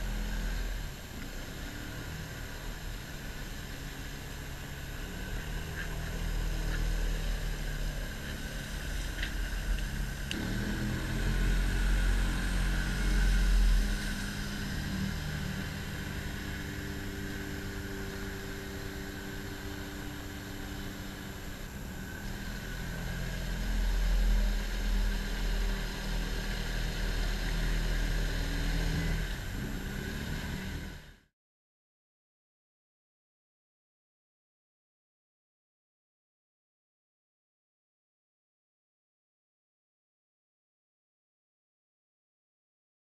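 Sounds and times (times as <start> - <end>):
driving through river water: 0.0 - 31.2
quad engine running: 0.0 - 31.2.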